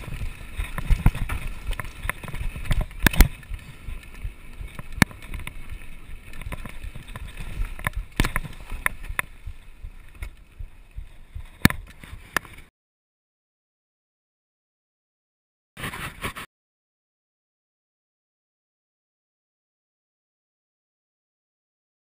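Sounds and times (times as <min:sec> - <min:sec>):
wind buffeting microphone: 0:00.0 - 0:12.6
bike knocking and rattling on stones: 0:00.0 - 0:12.7
bike tyres rumbling on trail: 0:00.0 - 0:12.7.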